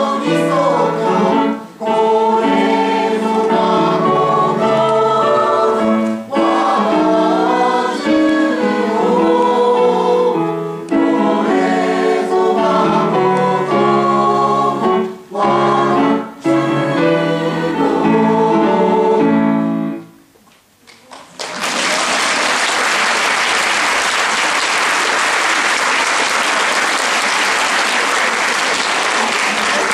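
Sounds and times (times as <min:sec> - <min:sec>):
choir singing: 0:00.0 - 0:20.1
audience applause: 0:21.0 - 0:29.9.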